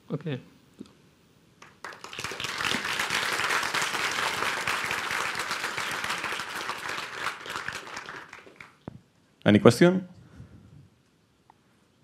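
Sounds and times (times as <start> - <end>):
audience applauding: 1.6 - 8.9.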